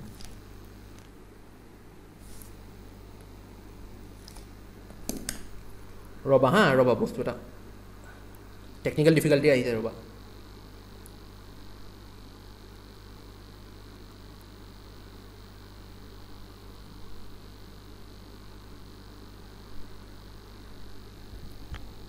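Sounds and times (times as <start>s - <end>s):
electrical mains hum: 0.0s - 22.0s.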